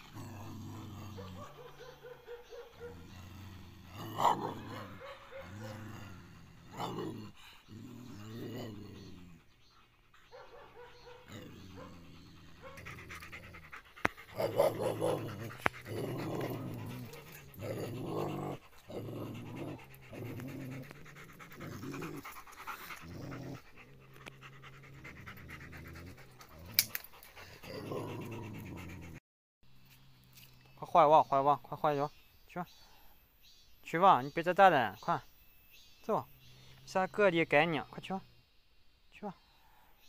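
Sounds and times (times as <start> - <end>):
dog panting: 9.0 - 29.2.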